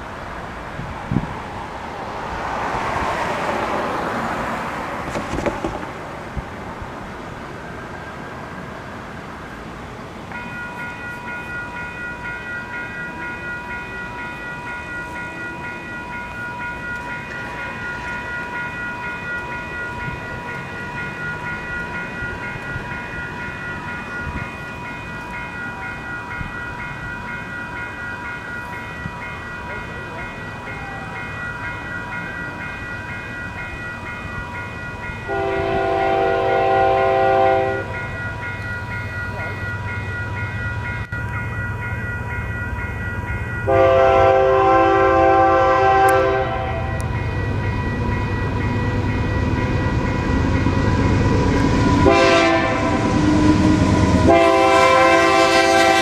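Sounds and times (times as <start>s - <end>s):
level crossing warning bell: 6.5s - 56.0s.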